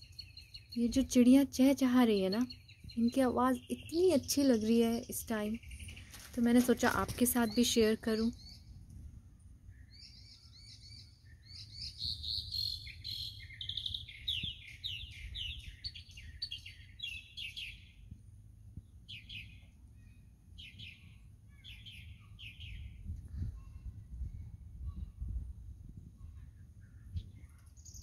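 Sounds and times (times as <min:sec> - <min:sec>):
songbirds chirping: 0:00.0 - 0:28.0
wind rumble on microphone: 0:04.8 - 0:09.9, 0:14.0 - 0:19.3, 0:22.4 - 0:28.0.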